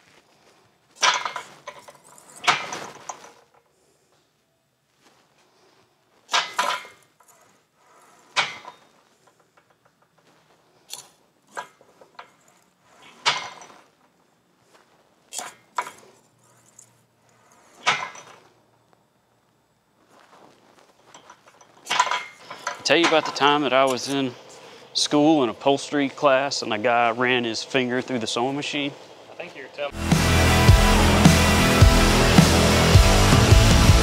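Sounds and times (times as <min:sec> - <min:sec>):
sheet metal clanking against bar: 0:01.0 - 0:03.1, 0:08.4 - 0:08.8, 0:17.8 - 0:18.3, 0:21.3 - 0:24.0.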